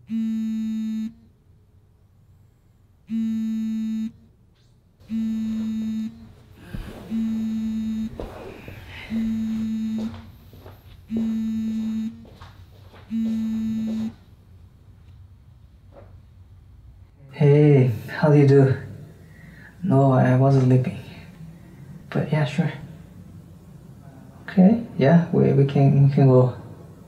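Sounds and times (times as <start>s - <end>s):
mobile phone buzzing: 0.0s - 1.2s, 3.1s - 4.2s, 5.0s - 10.3s, 11.1s - 12.4s, 13.1s - 14.2s.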